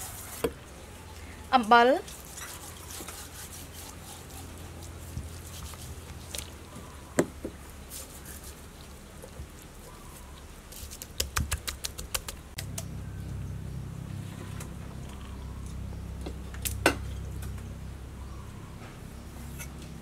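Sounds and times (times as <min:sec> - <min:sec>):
hands rubbing salt into fish: 0:02.1 - 0:06.6, 0:07.7 - 0:12.6.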